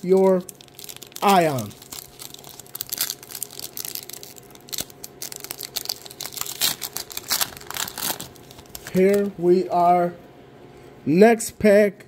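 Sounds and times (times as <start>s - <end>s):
foil wrapper tearing and crinkling: 0.0s - 9.3s.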